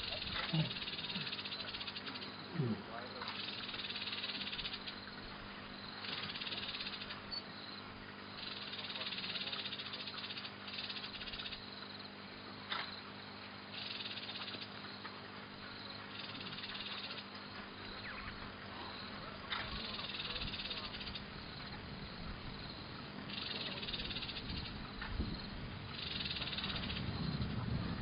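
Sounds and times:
small animal rattling trills: 0.0 - 2.7, 3.3 - 5.1, 6.0 - 7.4, 8.4 - 11.7, 13.7 - 15.2, 15.9 - 18.4, 19.4 - 21.8, 23.3 - 24.8, 25.9 - 27.1
sharp click: 12.7 - 12.9.

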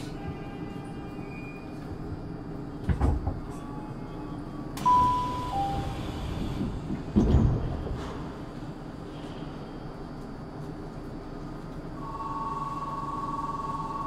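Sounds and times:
rush of air from doors: 5.1 - 10.0.

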